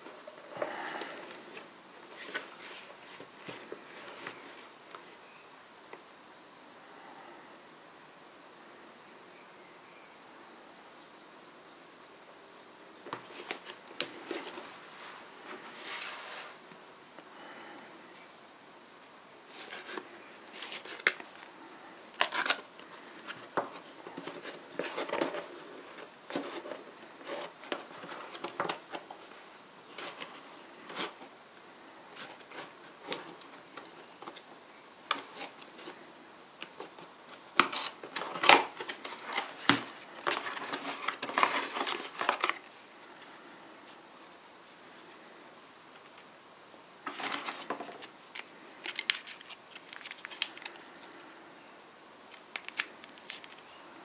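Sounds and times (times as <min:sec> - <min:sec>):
cardboard box scraping and rustling: 0:14.2 - 0:16.6.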